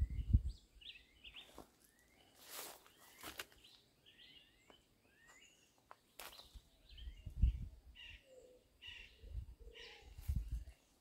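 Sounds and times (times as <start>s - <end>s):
small birds chirping: 0.0s - 11.0s
footsteps rustling through dry leaves: 1.4s - 3.6s.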